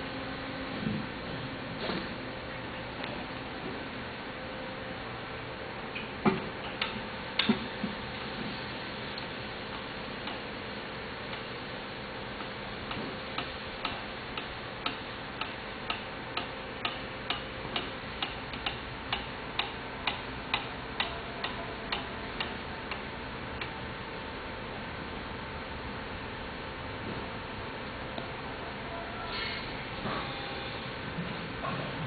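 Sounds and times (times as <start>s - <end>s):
faint hum: 0.0s - 32.0s
steady hiss: 6.5s - 17.4s.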